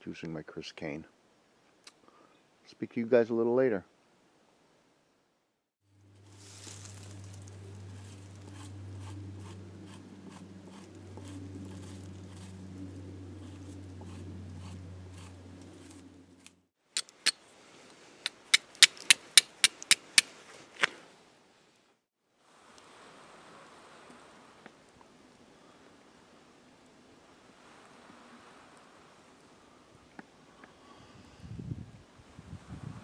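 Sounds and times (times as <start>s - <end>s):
steady low hum: 5.9s - 16.7s
steel striker scraping flint: 6.5s - 17.4s, 18.2s - 20.9s.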